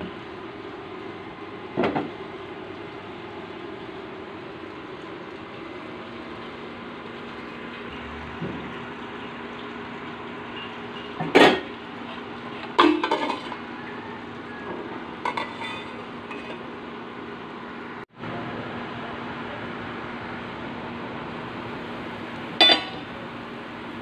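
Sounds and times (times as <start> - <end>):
metal pot and lid clanking: 10.6 - 11.7, 12.6 - 13.6, 14.7 - 16.7, 22.6 - 23.2.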